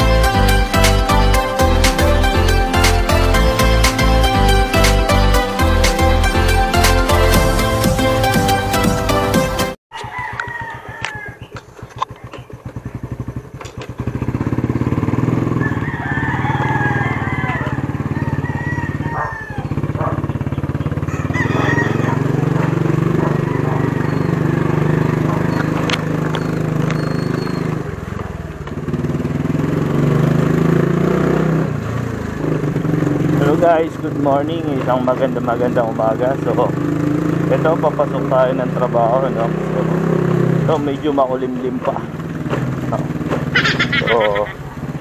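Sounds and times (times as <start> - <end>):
motorcycle engine: 0.0 - 45.0
roosters crowing: 9.9 - 11.8, 15.3 - 20.3, 20.9 - 27.7, 43.5 - 44.9.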